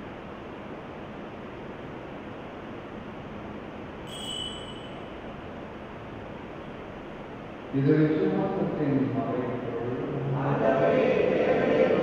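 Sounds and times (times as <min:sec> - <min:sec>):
background hiss: 0:00.0 - 0:12.0
faint high ring: 0:04.0 - 0:05.3.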